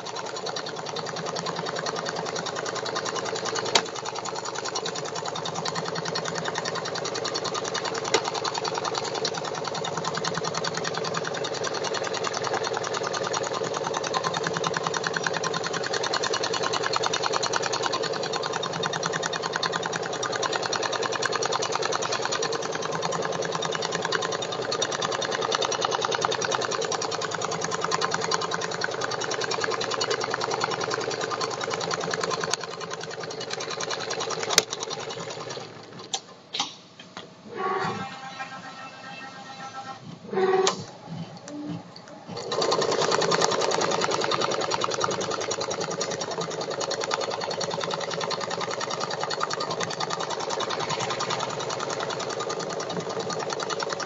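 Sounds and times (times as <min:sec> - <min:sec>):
sewing machine stitching: 0:00.0 - 0:36.2, 0:37.5 - 0:54.0
sharp machine clicks: 0:00.0 - 0:36.2, 0:42.4 - 0:54.0.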